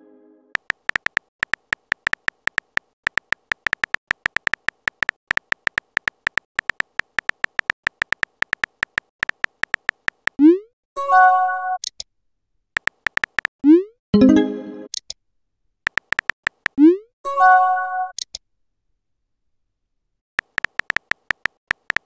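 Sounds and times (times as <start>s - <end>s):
phone keyboard typing clicks: 0.6s - 10.4s, 12.8s - 13.5s, 15.9s - 16.8s, 20.4s - 22.0s.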